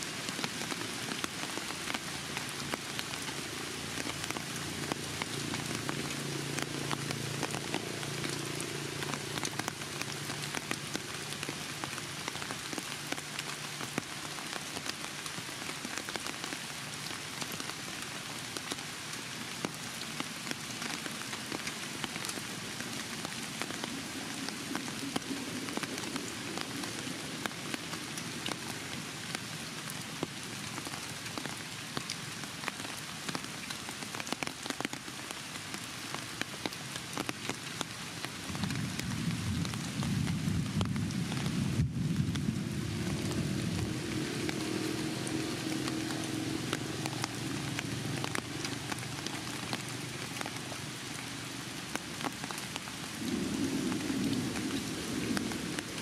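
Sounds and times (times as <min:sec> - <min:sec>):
crackling hiss with ticks: 0:00.0 - 0:56.0.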